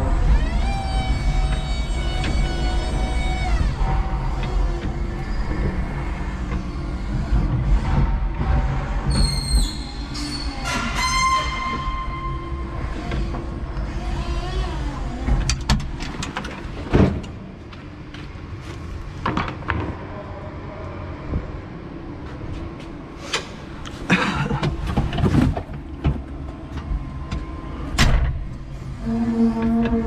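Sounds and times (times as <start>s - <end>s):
forklift motor hum: 0.0s - 16.9s.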